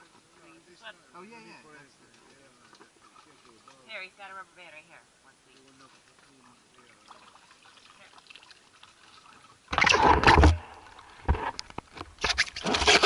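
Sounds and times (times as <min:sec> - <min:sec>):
water sloshing against camera: 0:05.4 - 0:13.0.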